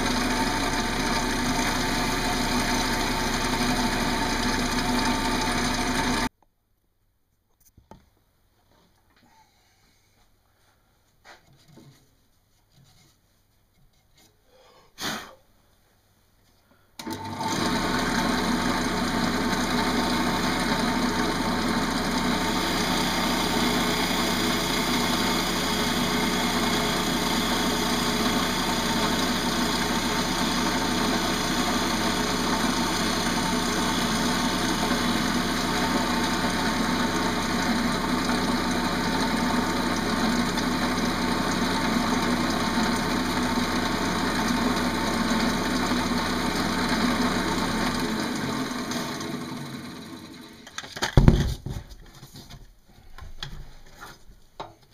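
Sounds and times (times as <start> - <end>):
wood lathe running: 0.0 - 6.3, 17.0 - 50.6
gouge cutting wood: 21.8 - 43.2.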